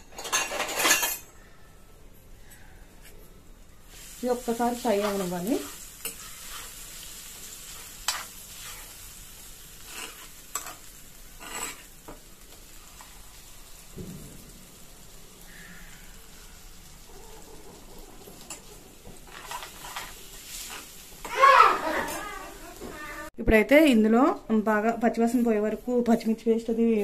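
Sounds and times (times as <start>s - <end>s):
paste sizzling in oil: 3.9s - 23.0s
steel spoon scraping a pan: 4.4s - 9.1s, 9.7s - 12.2s, 18.4s - 21.0s.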